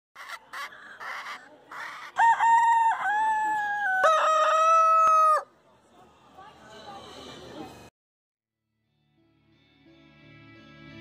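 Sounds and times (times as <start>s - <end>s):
chickens clucking: 0.2s - 2.2s
rooster crowing: 2.1s - 5.5s.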